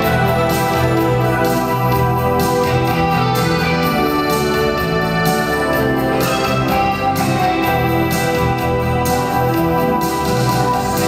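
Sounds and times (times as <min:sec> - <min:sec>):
electric guitars and bass: 0:00.0 - 0:11.0
electric keyboard chords: 0:00.0 - 0:11.0.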